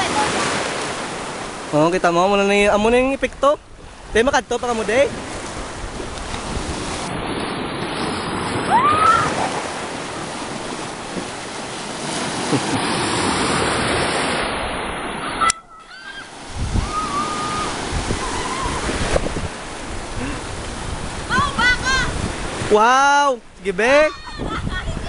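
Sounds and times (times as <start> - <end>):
sea waves breaking: 0.0 - 25.0
short rising cry: 15.8 - 18.9.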